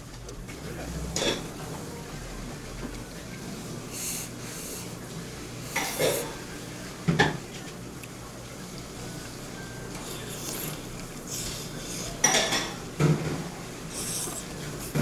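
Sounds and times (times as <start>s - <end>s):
utensils and dishes clinking: 0.5s - 1.9s, 9.8s - 15.0s.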